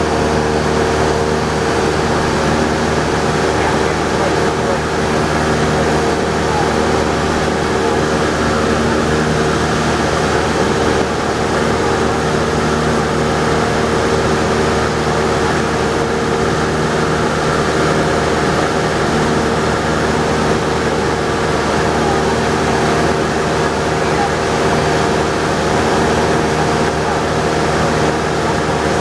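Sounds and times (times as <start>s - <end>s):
airplane engine droning: 0.0s - 29.0s.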